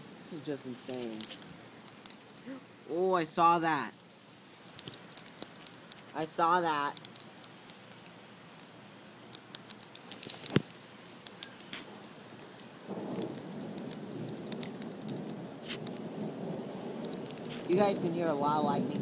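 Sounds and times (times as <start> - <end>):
heavy rain pouring: 0.0 - 19.0
thunder rumbling: 11.9 - 19.0.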